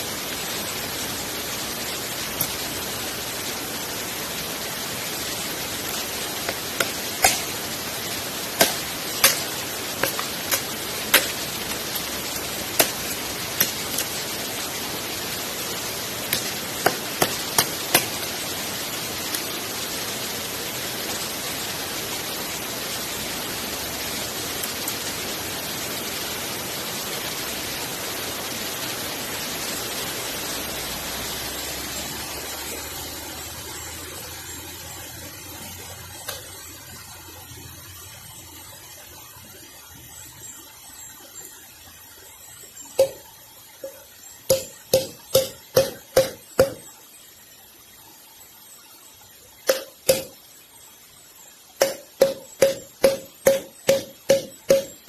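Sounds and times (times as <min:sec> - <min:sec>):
small waterfall and stream rushing: 0:00.0 - 0:55.0
wood being chopped by hand: 0:06.5 - 0:07.5, 0:08.6 - 0:11.4, 0:12.8 - 0:14.1, 0:16.3 - 0:18.2.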